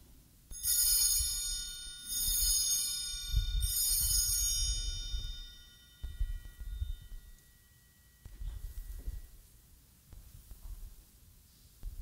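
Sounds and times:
altar bells ringing: 0.5 - 9.5.

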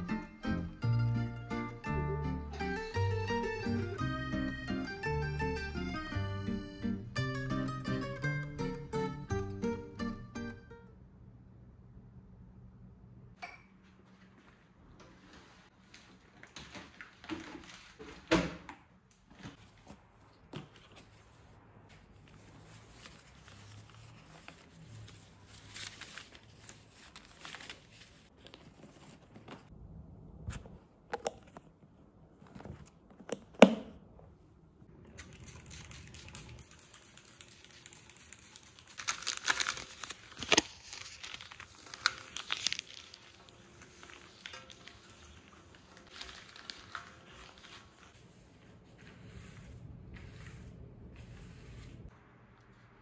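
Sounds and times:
packaging crinkling and tearing: 37.4 - 48.0.

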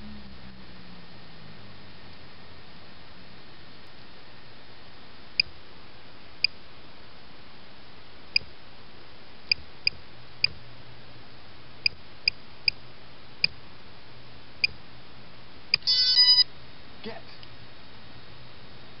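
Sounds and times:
short high electronic beeps: 15.8 - 16.4.

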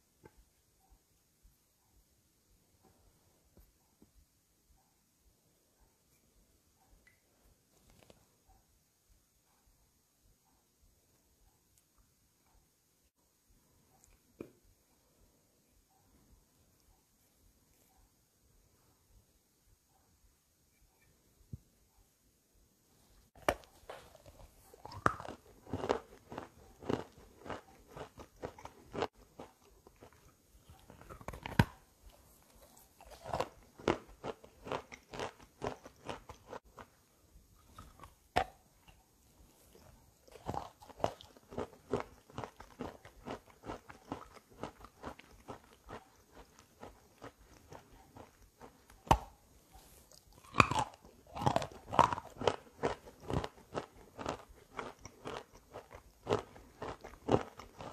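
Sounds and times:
chewing crunchy chalk: 23.4 - 37.0, 39.4 - 57.9.

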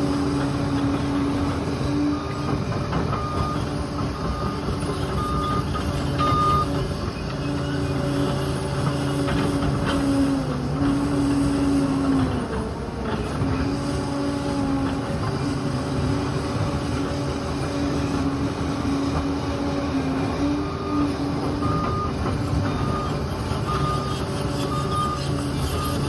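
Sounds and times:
bulldozer diesel engine rumble: 0.0 - 26.0
reversing alarm beeping: 2.0 - 8.1, 20.3 - 26.0.

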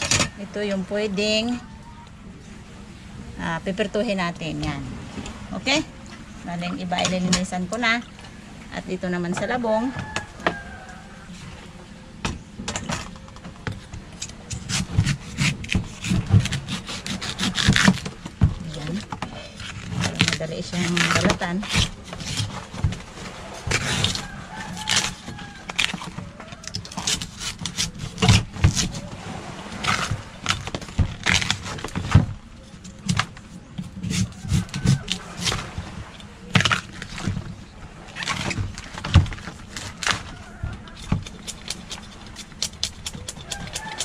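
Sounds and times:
knife cracking and scraping husk: 14.2 - 22.8, 23.6 - 29.1, 29.8 - 32.2, 32.8 - 37.4, 38.2 - 44.0.

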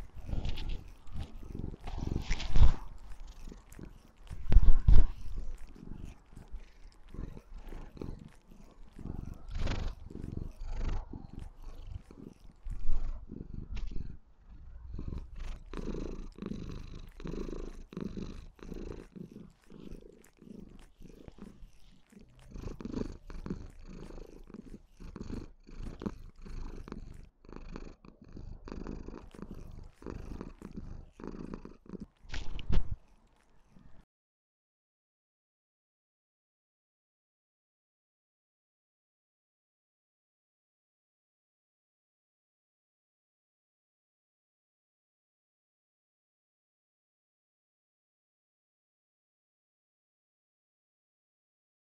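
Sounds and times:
kitten purring loudly: 0.0 - 34.1.

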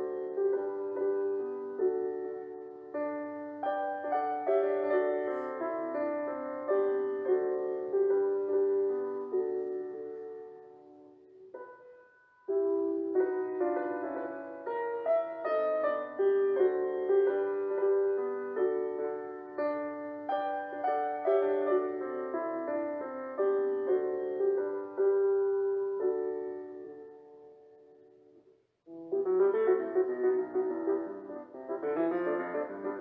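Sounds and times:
soft piano music: 0.0 - 33.0.

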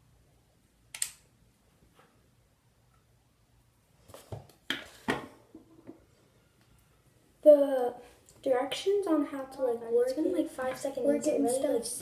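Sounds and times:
objects rustling and knocking: 4.0 - 6.2.

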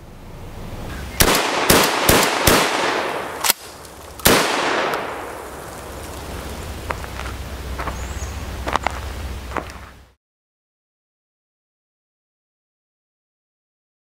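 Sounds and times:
sharp crack: 1.1 - 7.1
shotgun shots: 1.2 - 5.6.

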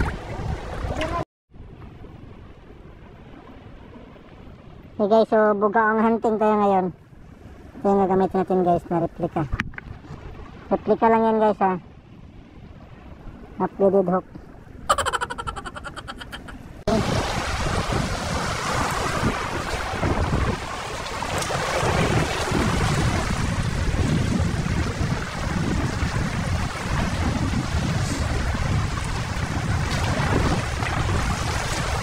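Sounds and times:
wind buffeting microphone: 16.6 - 32.0
waves washing over rocks: 16.8 - 32.0.

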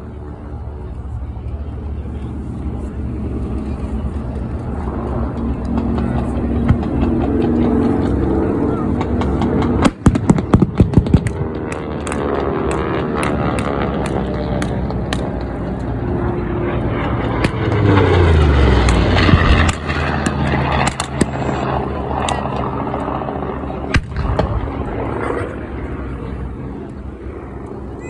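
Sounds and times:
propeller planes passing low: 0.0 - 28.0
pyrotechnic explosions: 9.1 - 12.4, 17.3 - 21.6, 23.8 - 25.5.

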